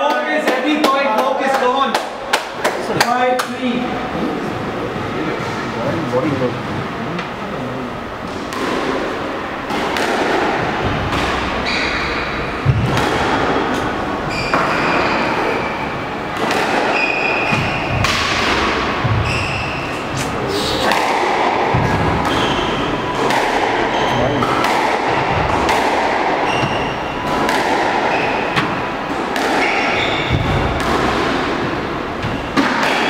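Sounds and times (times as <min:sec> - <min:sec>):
squash ball thuds: 0:08.3 - 0:33.0
shoes squeaking on wooden floor: 0:26.4 - 0:27.2, 0:29.6 - 0:30.7.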